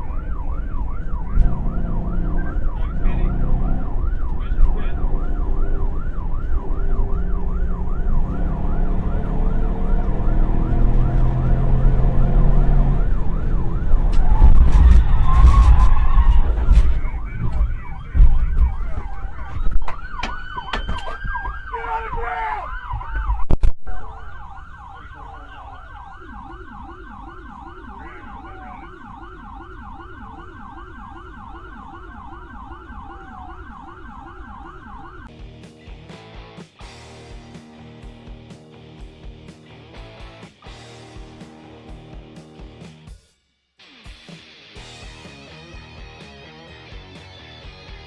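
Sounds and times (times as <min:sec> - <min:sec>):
lower siren yelping: 0:00.0 - 0:35.3
police siren yelping: 0:00.0 - 0:35.3
engine and road rumble: 0:00.0 - 0:43.1, 0:44.4 - 0:48.0.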